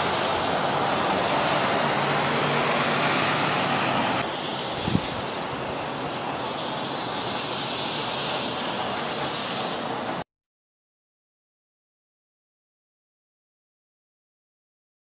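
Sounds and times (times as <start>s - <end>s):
rain storm rushing: 0.0s - 10.2s.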